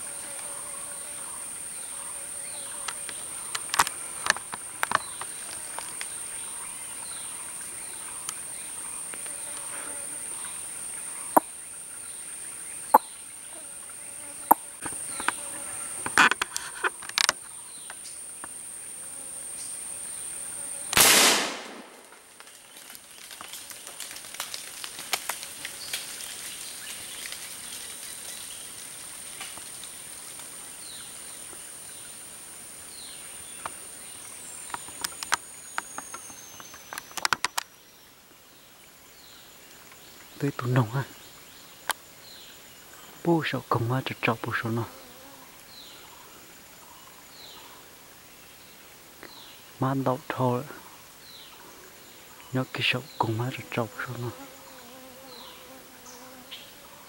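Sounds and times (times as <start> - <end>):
gunshot with echo: 21.0 - 22.0
small clicks and snaps: 22.4 - 30.5, 34.7 - 37.7.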